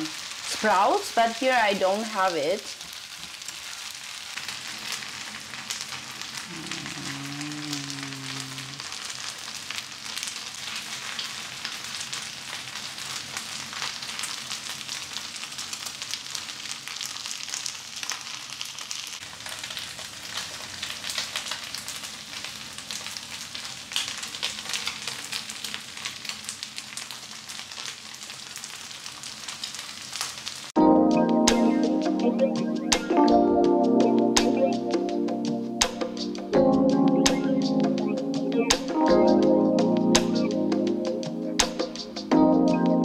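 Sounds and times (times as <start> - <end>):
noodles sizzling in frying pan: 0.0 - 7.1, 7.8 - 30.8.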